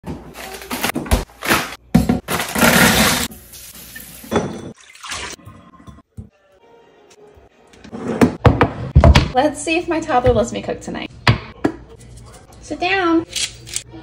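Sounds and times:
handling noise of bowls and packaging: 0.1s - 4.3s
water running from tap: 3.3s - 5.4s.

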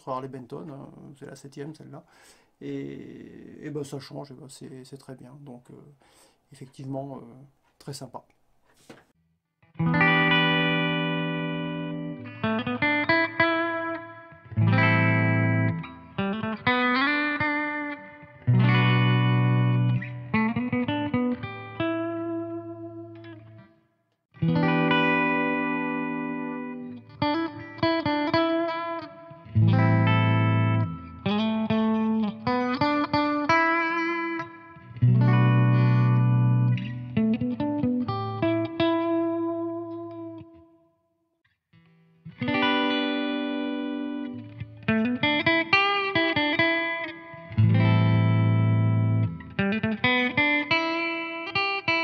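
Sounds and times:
electric guitar chords and notes: 9.6s - 40.7s, 41.8s - 52.0s.

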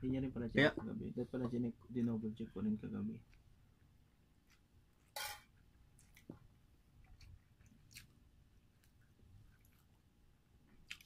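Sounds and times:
faint chewing: 3.2s - 11.0s.

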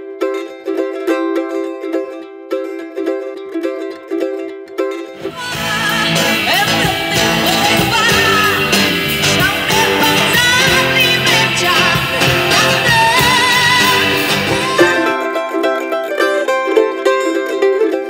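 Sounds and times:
woman singing: 5.2s - 15.3s
rock band playing: 5.2s - 16.0s.

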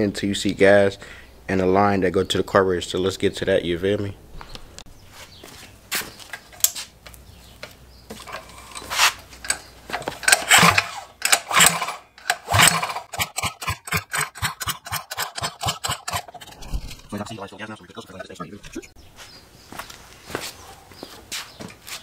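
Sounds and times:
recoil starter pull whirring: 8.3s - 16.7s
rapid even clicking: 9.4s - 17.8s.

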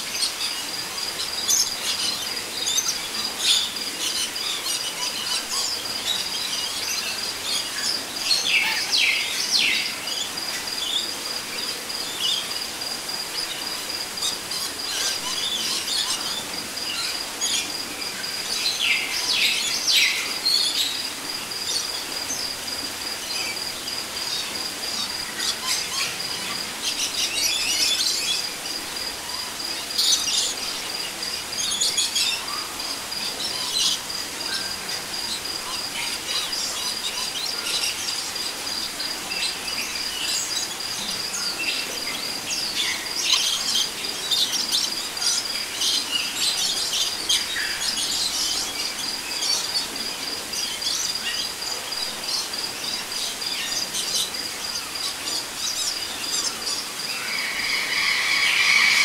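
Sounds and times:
high steady insect trill: 0.2s - 59.0s
birds calling: 55.4s - 59.0s.

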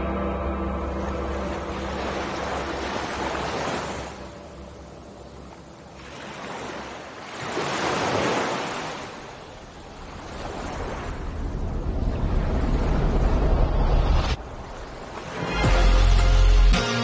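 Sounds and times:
waves washing in: 0.8s - 16.3s
low rumble: 11.1s - 15.0s.

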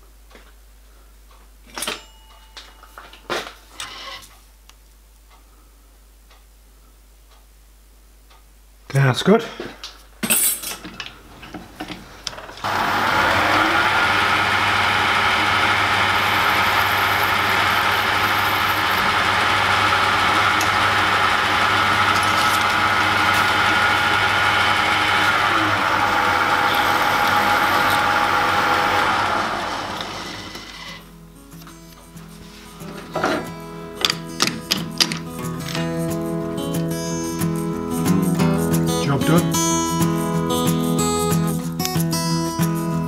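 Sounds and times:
lathe switch: 12.6s - 31.0s
lathe motor whining: 12.6s - 31.1s.

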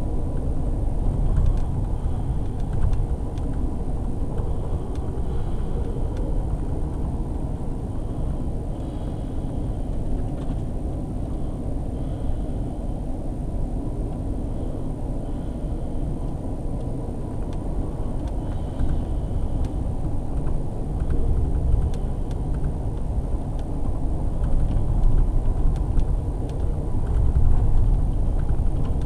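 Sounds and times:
train wheels rumbling on track: 0.0s - 13.0s, 13.9s - 29.0s.

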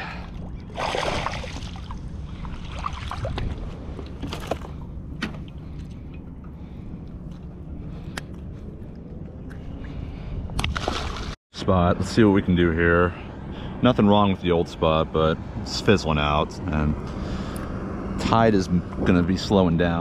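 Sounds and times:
fish splash: 0.7s - 3.6s.

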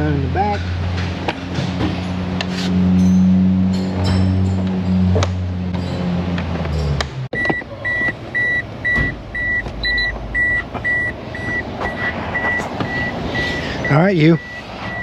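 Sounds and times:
dashboard warning chime beeping: 7.3s - 15.0s.

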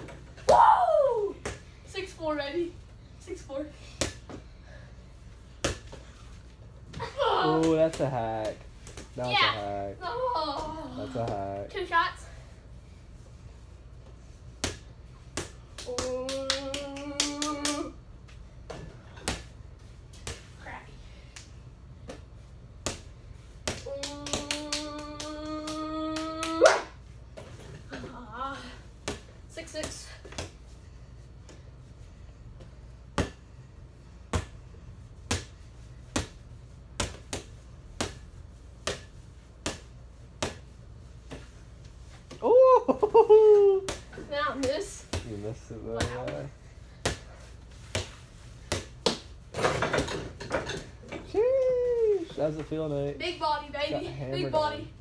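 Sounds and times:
steady hum: 0.0s - 55.0s
ball bouncing on hard floor: 43.9s - 50.9s.

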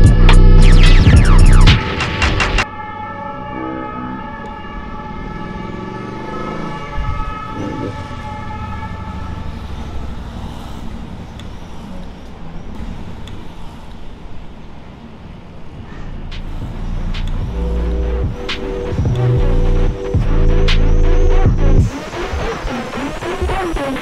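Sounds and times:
city street traffic: 0.0s - 24.0s
sustained ringing tone: 2.7s - 12.6s.

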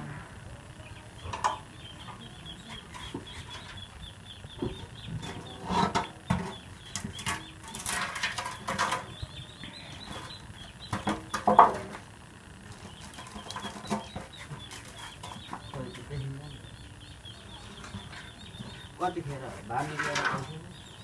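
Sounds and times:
birds chirping: 0.0s - 21.0s
knocks and scrapes on metal tank: 4.6s - 9.1s.

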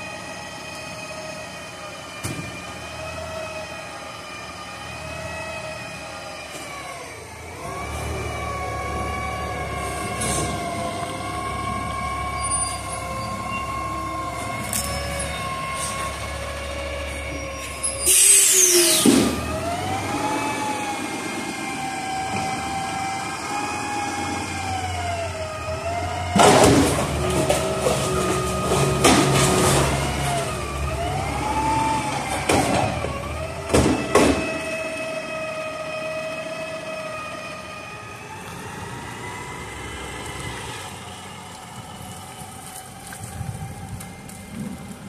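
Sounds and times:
garbage truck engine whine: 0.0s - 45.0s
trash tipping into hopper: 26.3s - 30.5s.

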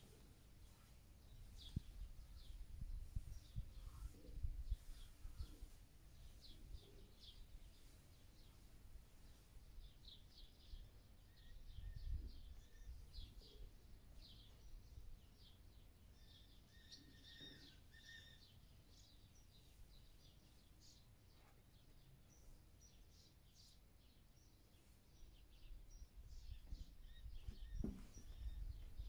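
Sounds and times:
faint bird chirps: 10.0s - 29.0s.

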